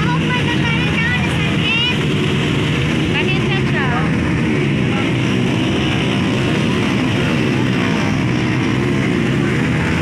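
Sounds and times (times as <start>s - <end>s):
dirt bike engine under throttle: 0.0s - 10.0s.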